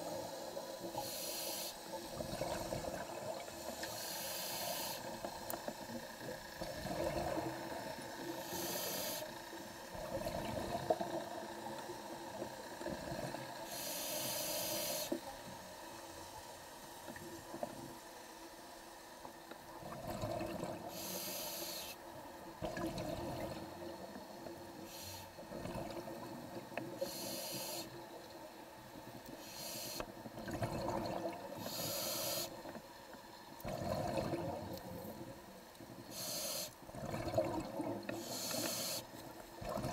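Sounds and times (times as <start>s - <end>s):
regulator hissing inhale: 0.1s - 2.0s, 3.6s - 5.2s, 8.2s - 9.8s, 13.6s - 15.2s, 20.9s - 22.0s, 24.8s - 25.4s, 26.9s - 28.0s, 29.3s - 30.1s, 31.6s - 32.6s, 36.0s - 36.8s, 38.1s - 39.2s
bubbling of exhaled air: 6.6s - 7.8s, 19.8s - 20.9s, 30.4s - 31.6s, 33.6s - 35.2s, 36.9s - 38.5s.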